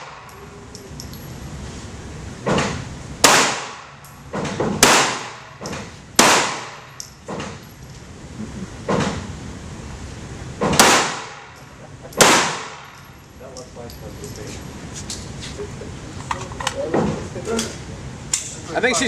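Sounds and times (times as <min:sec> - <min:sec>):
handgun shots echoing: 0:03.2 - 0:04.0, 0:04.7 - 0:07.1, 0:10.7 - 0:11.6, 0:12.2 - 0:13.0.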